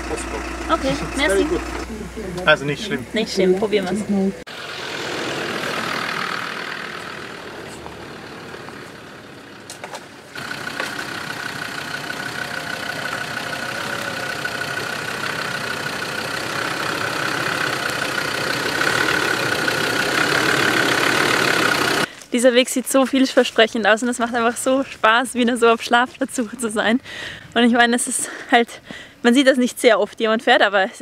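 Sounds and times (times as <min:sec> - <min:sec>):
diesel engine climbing: 0:00.0 - 0:22.1.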